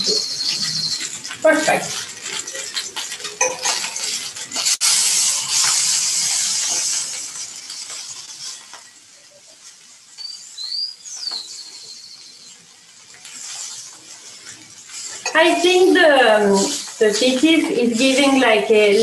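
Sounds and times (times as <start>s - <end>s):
utensil clinking against pan: 0.0s - 4.7s
food sizzling in a frying pan: 0.0s - 19.0s.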